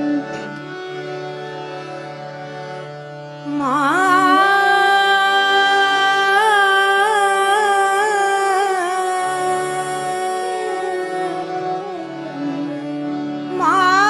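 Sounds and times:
sustained instrumental accompaniment: 0.0s - 14.0s
woman singing: 3.5s - 14.0s.

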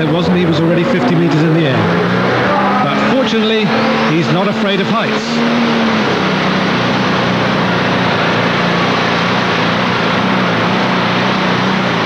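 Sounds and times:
tractor diesel engine at full power: 0.0s - 12.0s.

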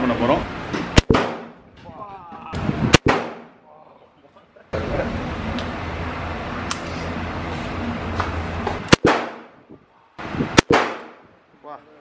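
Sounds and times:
revolver shots with echo: 1.0s - 1.6s, 8.9s - 9.5s, 10.6s - 11.2s.

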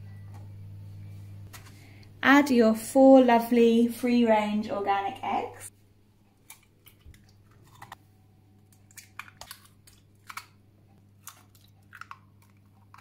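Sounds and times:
eggshells cracking on bowl: 8.6s - 13.0s.

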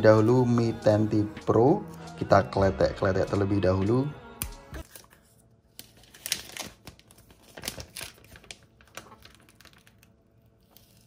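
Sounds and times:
plastic film peeling and crinkling: 4.8s - 11.0s.

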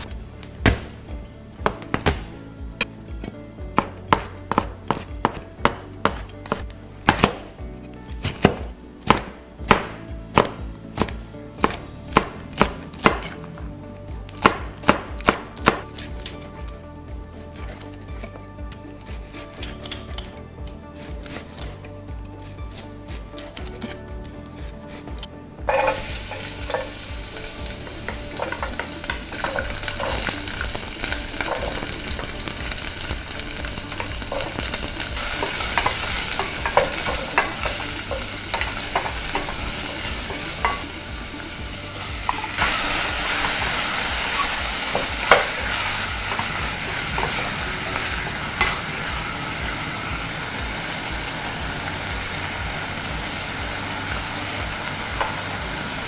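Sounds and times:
chopsticks knocking on pot: 25.7s - 40.9s
onions sizzling in oil: 25.7s - 56.0s.

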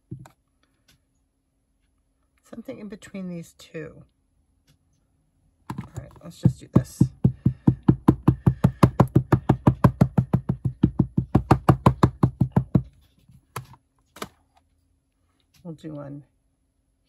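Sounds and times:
ink pad tapping rubber stamp: 5.7s - 12.9s.

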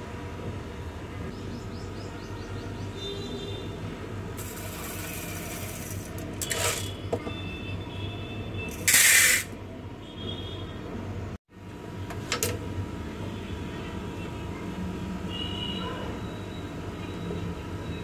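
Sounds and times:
dry lentils rattling in metal pot: 4.4s - 7.0s, 8.7s - 9.5s.

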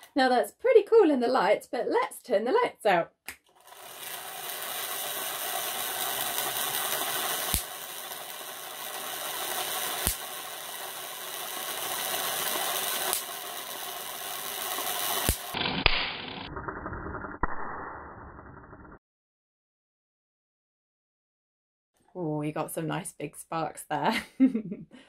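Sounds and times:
electric spark cracks: 3.5s - 16.5s
spinning discs whirring: 3.5s - 19.0s.

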